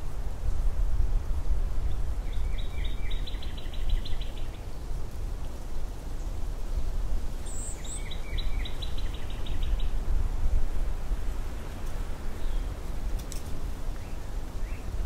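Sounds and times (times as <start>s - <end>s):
wind blowing in low rumble: 0.0s - 15.0s
songbird singing high notes: 7.5s - 9.8s.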